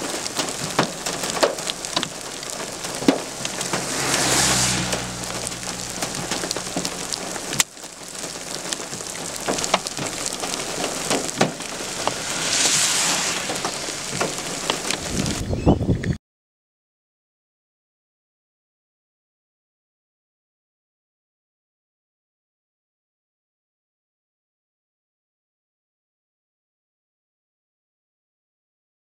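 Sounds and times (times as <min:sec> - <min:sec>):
hailstones ticking: 0:00.0 - 0:04.0, 0:04.9 - 0:12.3, 0:13.6 - 0:15.4
vehicles passing on wet road: 0:00.0 - 0:15.5
rain hissing: 0:00.0 - 0:15.6.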